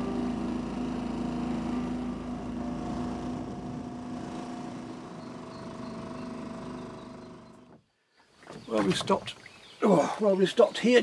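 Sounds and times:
small boat motor droning: 0:00.0 - 0:07.8.

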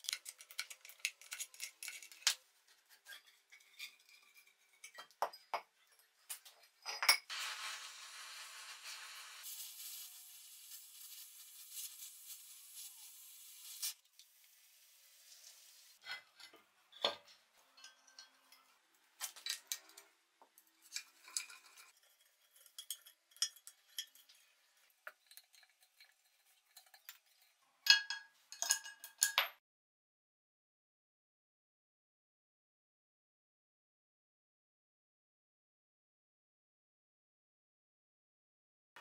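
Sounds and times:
wrench clinking and scraping: 0:00.0 - 0:07.3, 0:16.0 - 0:20.1, 0:20.8 - 0:29.6
gas torch flame hissing: 0:07.3 - 0:16.0.

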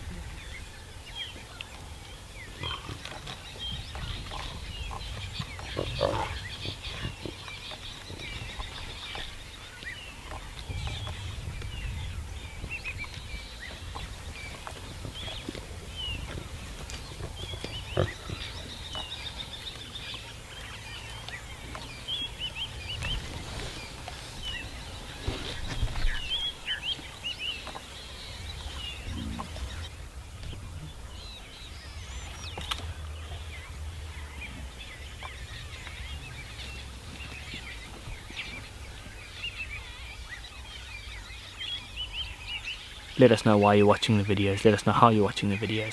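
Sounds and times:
lion cubs grunting and growling: 0:00.0 - 0:09.4, 0:10.2 - 0:39.1
small birds chirping: 0:00.0 - 0:45.9
low steady rumble: 0:08.2 - 0:43.1.

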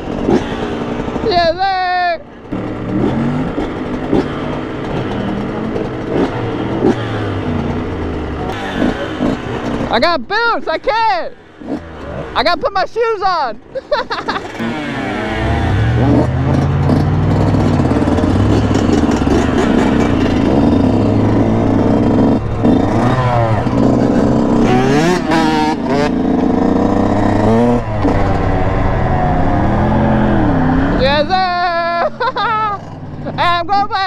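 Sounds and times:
dirt bike engine revving: 0:00.0 - 0:10.2, 0:11.2 - 0:12.6, 0:14.0 - 0:33.7
wind noise: 0:15.4 - 0:31.6.

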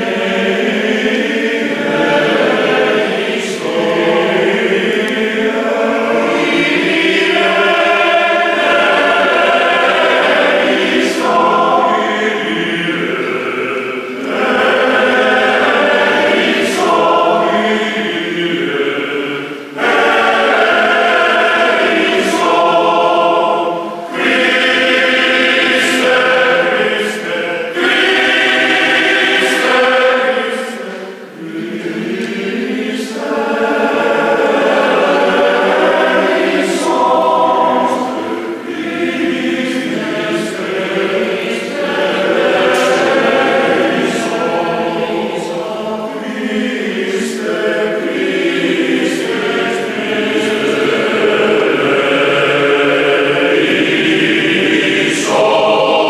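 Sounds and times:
male choir singing in harmony: 0:00.0 - 0:56.0
singers breathing: 0:19.4 - 0:19.8, 0:23.8 - 0:24.1.

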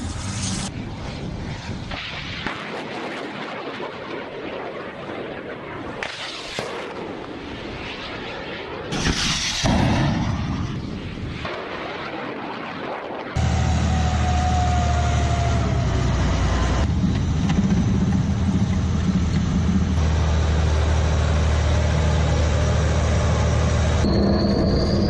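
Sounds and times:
high steady whine: 0:13.4 - 0:25.0
tracked vehicle engine drone: 0:13.4 - 0:25.0.

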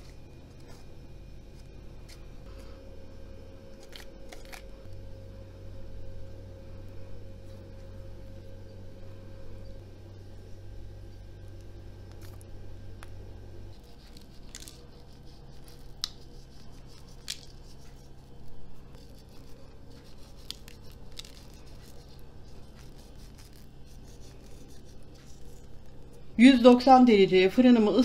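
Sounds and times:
low steady hum: 0:00.0 - 0:28.0
sesame seeds sprinkled: 0:13.7 - 0:26.3.

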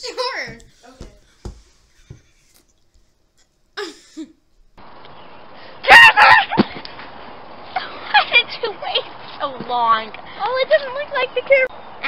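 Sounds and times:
steady outdoor hiss: 0:03.8 - 0:12.0
girl shrieking: 0:05.8 - 0:06.6.

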